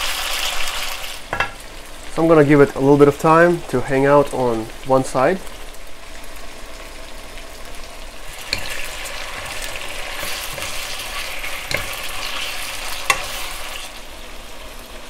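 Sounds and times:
meat sizzling in oil: 0.0 - 15.0
spatulas knocking on pan: 1.3 - 1.6, 11.6 - 12.2, 13.0 - 13.4.

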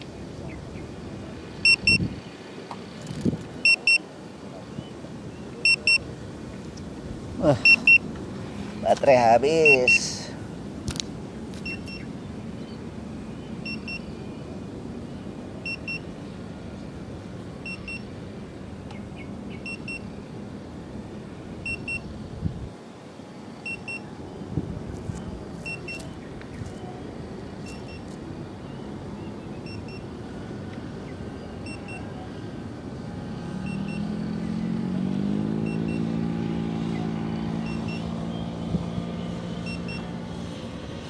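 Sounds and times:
steady background noise: 0.0 - 41.0
short double beeps: 1.6 - 2.1, 3.6 - 4.0, 5.6 - 6.0, 7.6 - 8.0, 11.6 - 12.0, 17.7 - 18.0.

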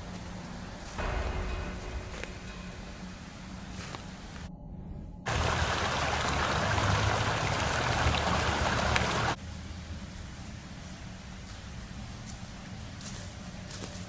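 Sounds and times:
faint outdoor ambience: 0.0 - 14.0
water rushing over rocks: 5.3 - 9.4.

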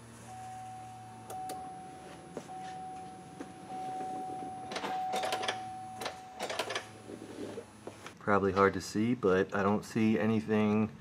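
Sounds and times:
steady whine: 0.0 - 9.2
ignition clicks: 1.2 - 1.7.

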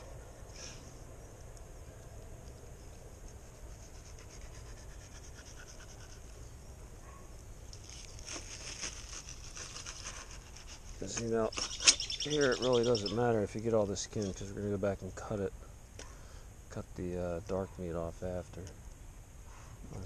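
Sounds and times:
knife scraping fish skin: 7.8 - 12.1.

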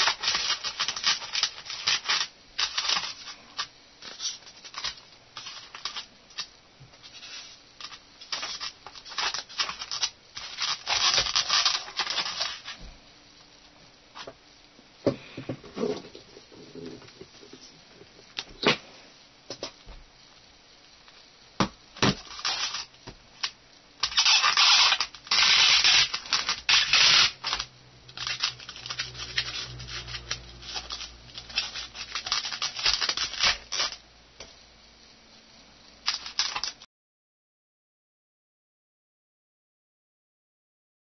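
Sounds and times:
hands scraping styrofoam: 24.0 - 27.6.

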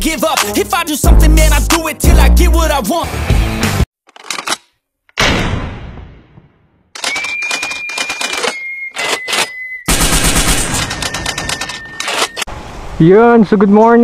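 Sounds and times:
automatic gunfire bursts: 9.9 - 11.0.

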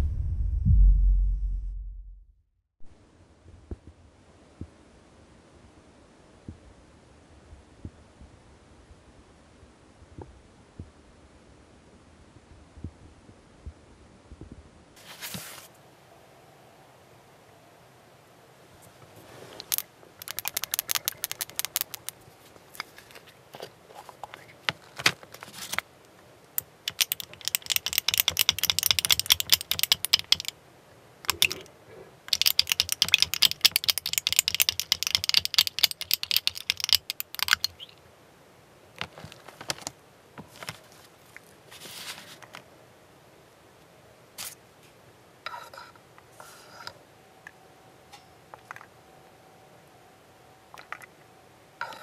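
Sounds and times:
spoon rattling in glass jar: 19.7 - 22.1, 26.9 - 30.5, 31.3 - 31.7, 32.3 - 37.9.

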